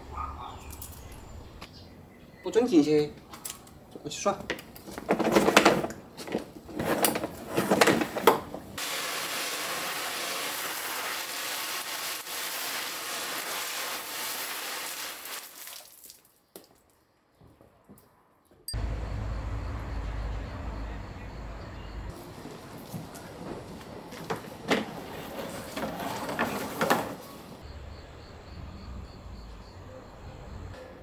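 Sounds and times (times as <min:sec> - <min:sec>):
garden hose spraying water: 0:08.8 - 0:16.8.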